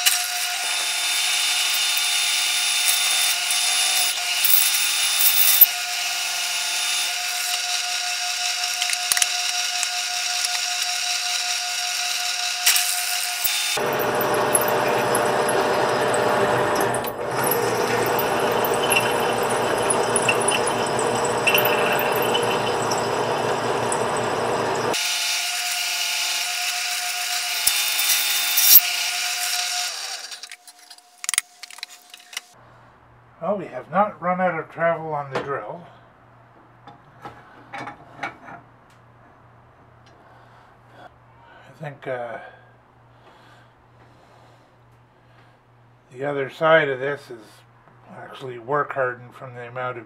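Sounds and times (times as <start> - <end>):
drill press drilling into steel: 7.2 - 30.5.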